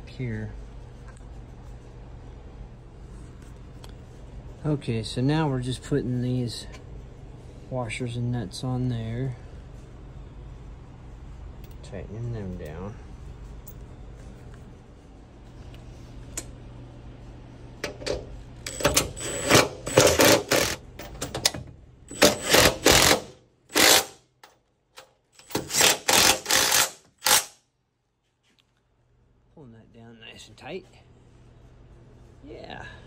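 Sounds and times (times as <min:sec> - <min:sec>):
impact driver hammering nuts: 0:18.7 - 0:20.8, 0:22.1 - 0:24.2, 0:25.4 - 0:27.5.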